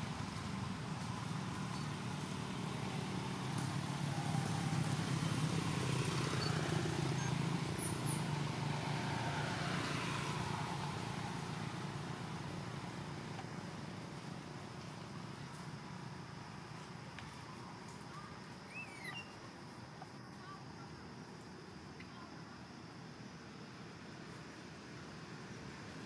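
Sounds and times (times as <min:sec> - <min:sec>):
vehicle engine rumble passing: 0:00.0 - 0:19.9.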